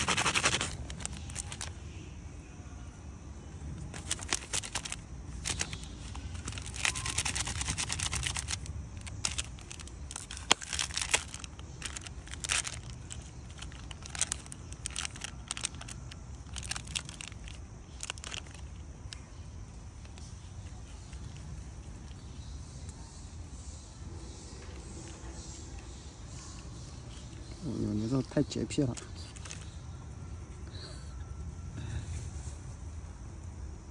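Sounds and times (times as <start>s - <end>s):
plastic wrapper crinkling and tearing: 0.0s - 1.7s, 3.9s - 19.2s, 29.0s - 29.8s.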